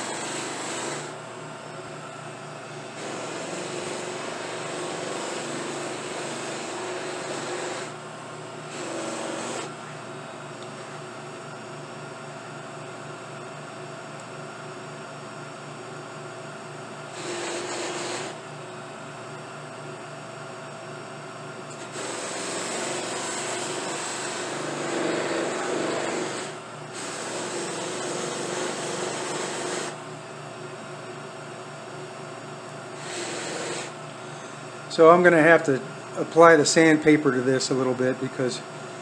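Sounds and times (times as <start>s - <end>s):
buffing machine running: 0.0s - 1.2s, 21.7s - 30.0s
rushing whir of wood buffing: 0.0s - 1.2s, 21.8s - 30.0s.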